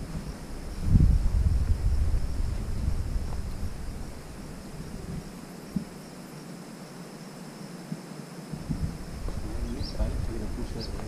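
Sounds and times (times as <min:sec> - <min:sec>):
low rumble on microphone: 0:00.0 - 0:06.0, 0:08.5 - 0:11.0
insects chirring: 0:00.0 - 0:11.0.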